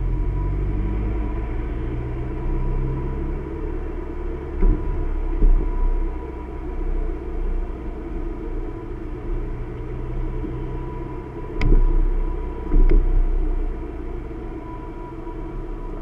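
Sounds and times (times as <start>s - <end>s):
car road and engine rumble: 0.0s - 16.0s
faint steady whine: 0.0s - 16.0s
car knocking over bump: 4.6s - 5.9s.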